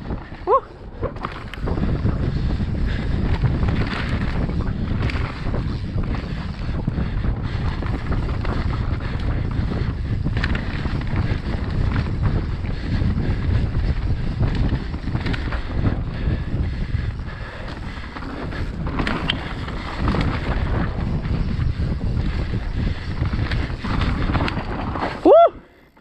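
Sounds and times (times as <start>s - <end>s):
wind rushing over microphone: 0.0s - 25.6s
bike knocking and rattling: 0.0s - 26.0s
tyres rolling over dirt: 17.7s - 25.4s.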